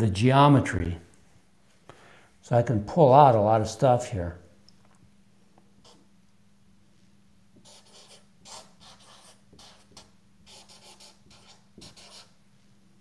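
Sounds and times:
faint steady hum: 0:00.0 - 0:13.0
marker writing on whiteboard: 0:07.6 - 0:12.4.

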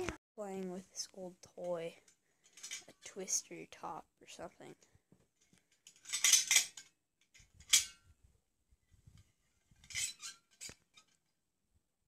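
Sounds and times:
spinning top clinking and clattering: 0:05.8 - 0:06.8.

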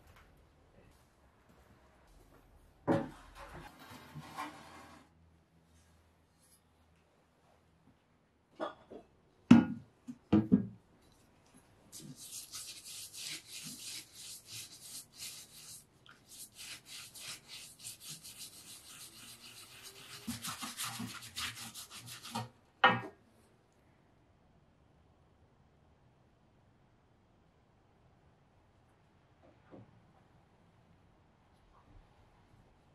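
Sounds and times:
stiff brush scrubbing in water: 0:11.9 - 0:22.5.

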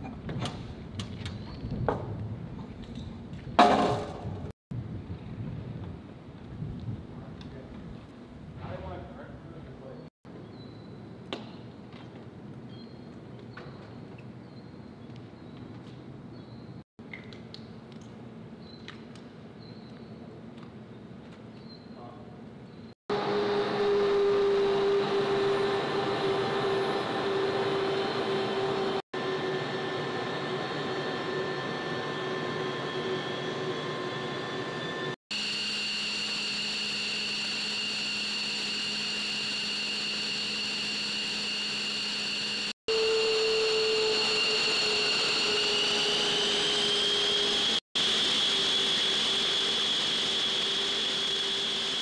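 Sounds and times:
jet engines whining: 0:23.1 - 0:52.0.

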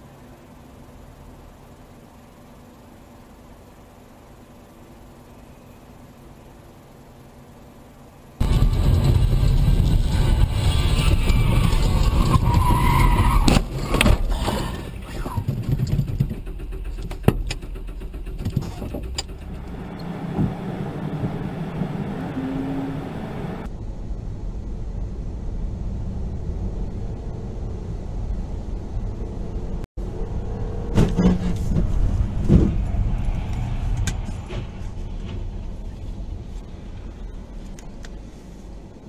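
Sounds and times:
dull traffic rumble: 0:00.0 - 0:39.0
road and engine noise in car: 0:00.0 - 0:39.0.

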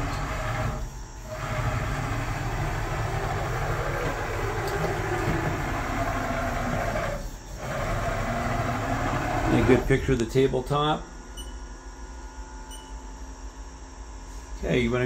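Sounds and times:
machine table mechanical rumble: 0:00.0 - 0:10.8.

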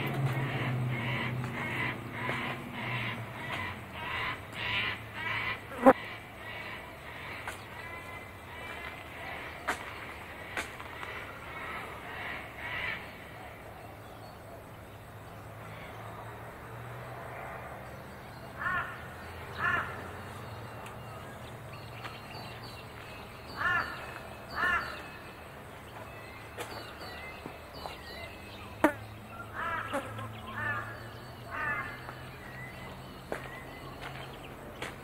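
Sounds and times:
crow cawing: 0:00.6 - 0:05.6, 0:18.6 - 0:20.2, 0:23.5 - 0:25.2, 0:29.5 - 0:32.2.

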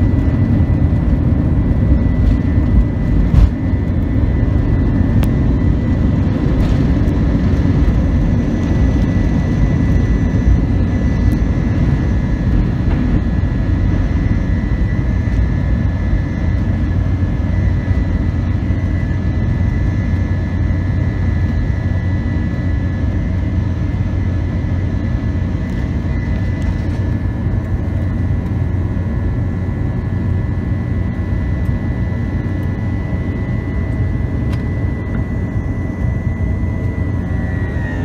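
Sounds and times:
high engine whine: 0:00.0 - 0:38.0
jet engines rumbling: 0:00.0 - 0:38.0.

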